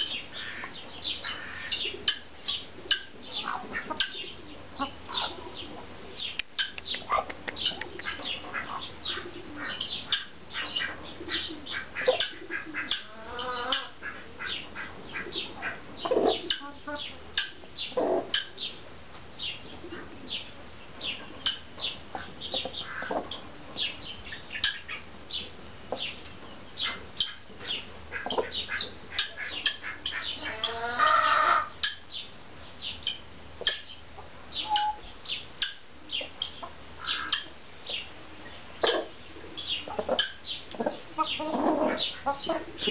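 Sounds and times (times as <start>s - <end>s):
chickens chirping: 0.0s - 42.9s
chicken squawk: 0.1s - 5.7s, 6.6s - 18.5s, 26.8s - 32.0s, 34.6s - 36.3s, 37.0s - 37.5s, 38.8s - 39.2s, 39.8s - 42.9s.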